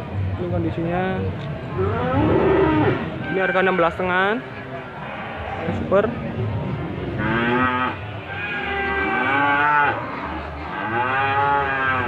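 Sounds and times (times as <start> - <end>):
cattle mooing: 1.8 - 3.1, 7.2 - 12.0.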